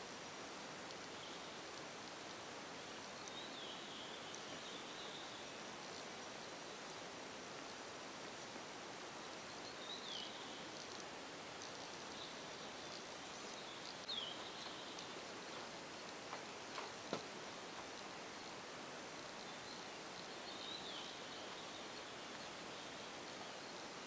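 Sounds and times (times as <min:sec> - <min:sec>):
background hiss: 0:00.0 - 0:24.0
faint clicks: 0:00.8 - 0:04.8, 0:10.7 - 0:20.3.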